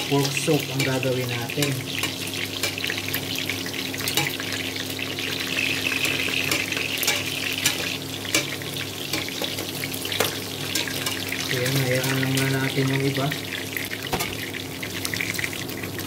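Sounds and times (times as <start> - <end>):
metal tongs turning meat: 0.0 - 4.7, 5.3 - 13.0
pork sizzling in hot oil: 0.0 - 16.0.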